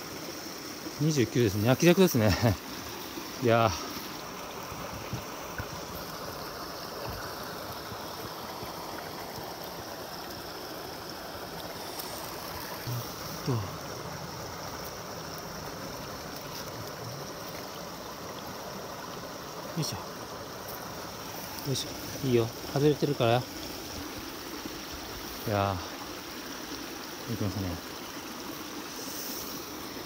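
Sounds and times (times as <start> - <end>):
stream flowing: 0.0 - 30.0.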